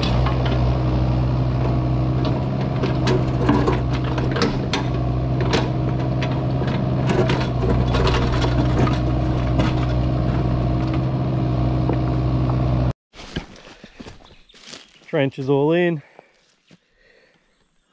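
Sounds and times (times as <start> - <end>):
excavator diesel engine: 0.0 - 12.9.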